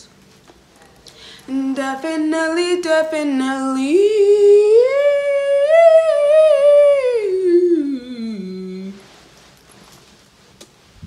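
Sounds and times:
woman singing long note: 0:01.5 - 0:09.0.

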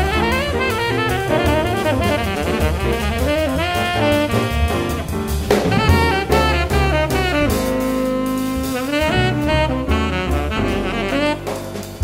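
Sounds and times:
jazz with horn melody and drums: 0:00.0 - 0:12.0.

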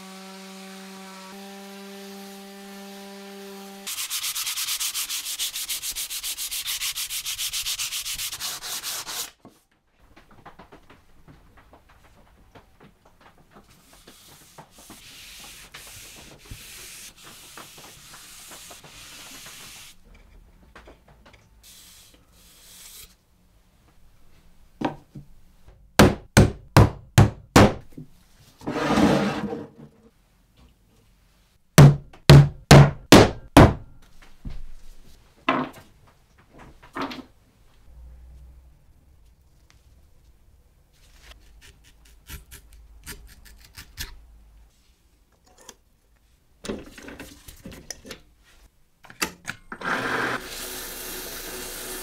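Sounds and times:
cloth rubbing on wood: 0:13.7 - 0:20.0.

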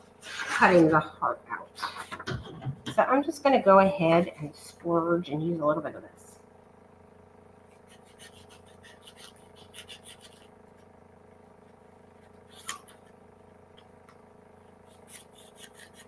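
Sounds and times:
faint steady hum: 0:00.0 - 0:16.0
scissors snipping paper: 0:07.8 - 0:10.5, 0:12.2 - 0:13.1, 0:14.8 - 0:16.0.

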